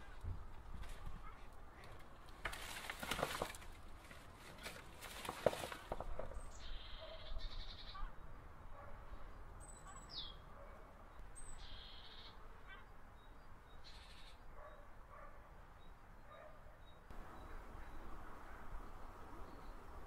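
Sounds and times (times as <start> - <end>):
leaves and twigs rustling: 0.0 - 7.1
bird chirps: 6.3 - 8.3, 9.6 - 10.5, 11.1 - 14.8, 15.8 - 18.3.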